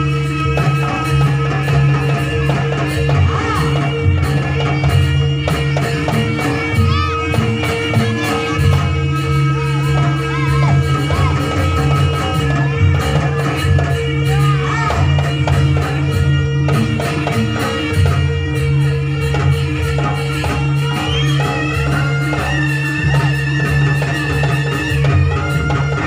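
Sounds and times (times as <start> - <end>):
crowd noise: 0.0 - 26.0
hand drums and gong chimes: 0.0 - 26.0
person singing: 2.3 - 17.9.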